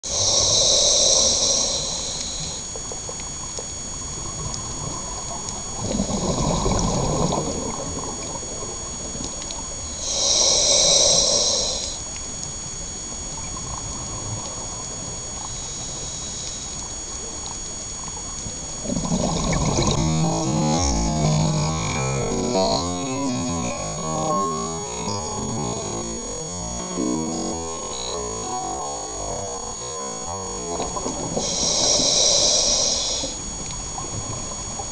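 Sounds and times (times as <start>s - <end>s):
faint high whine: 0.0s - 34.9s
regulator hissing inhalations: 0.1s - 2.7s, 9.9s - 12.1s, 15.4s - 16.9s, 19.9s - 33.5s
exhaled bubbles gurgling: 2.0s - 9.9s, 13.1s - 34.9s.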